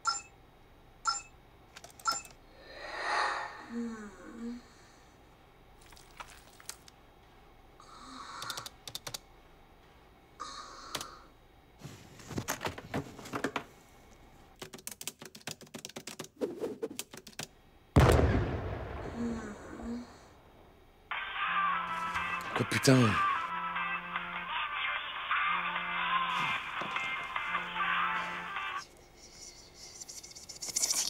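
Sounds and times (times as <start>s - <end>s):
keyboard typing: 1.8s - 2.4s, 8.4s - 9.2s, 14.6s - 16.3s, 16.9s - 17.5s.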